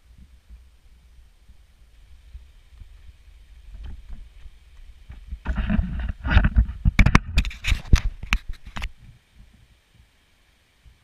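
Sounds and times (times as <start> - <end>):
camera handling scraping and clicks: 5.5 - 8.9.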